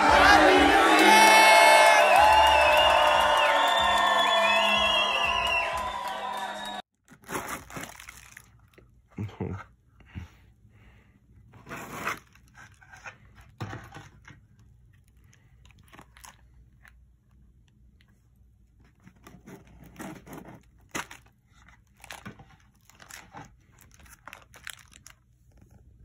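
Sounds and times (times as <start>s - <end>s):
cardboard box and wrappers rustling: 7.0s - 8.6s, 18.9s - 25.3s.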